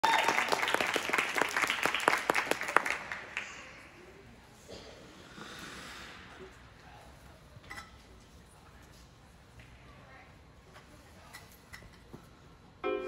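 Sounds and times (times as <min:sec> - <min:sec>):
audience clapping: 0:00.0 - 0:03.9.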